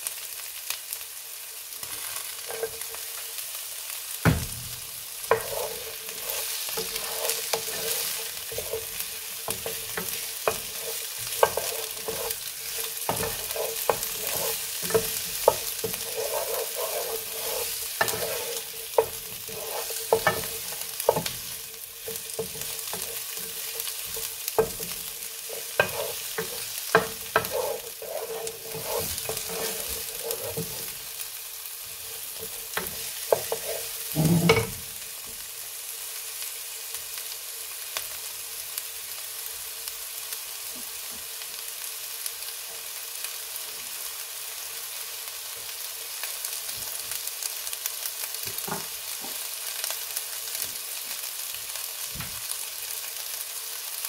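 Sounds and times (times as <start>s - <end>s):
vegetables sizzling in oil: 0.0s - 54.0s
wooden spoon stirring and scraping: 2.2s - 3.1s, 5.3s - 31.2s, 32.0s - 34.7s.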